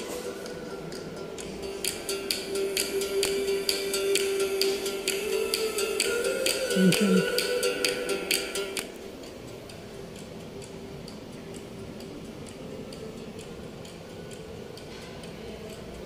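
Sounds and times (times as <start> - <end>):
faint steady hum: 0.0 - 16.0
soft regular ticking: 8.8 - 16.0.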